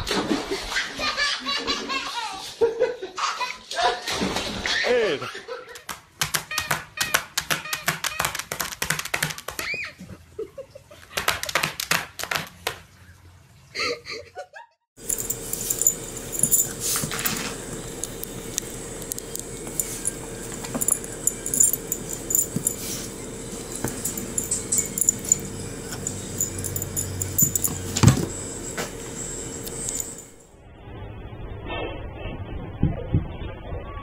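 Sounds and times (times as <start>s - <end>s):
steady hum: 15.0s - 31.4s.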